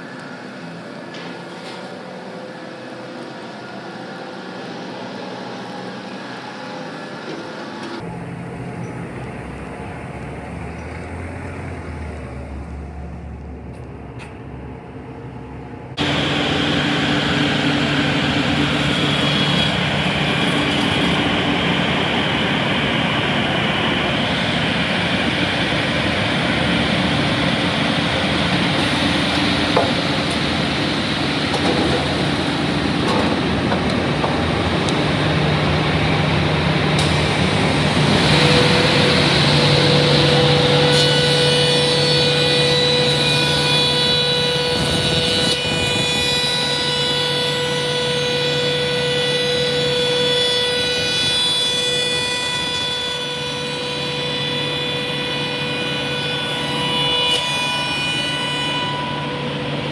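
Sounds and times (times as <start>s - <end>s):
circular saw machinery din: 0.0s - 59.9s
high ringing whine: 54.2s - 59.9s.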